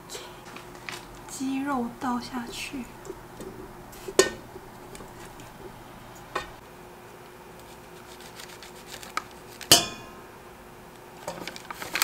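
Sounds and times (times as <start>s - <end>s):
knocks against steel pot: 3.0s - 5.8s.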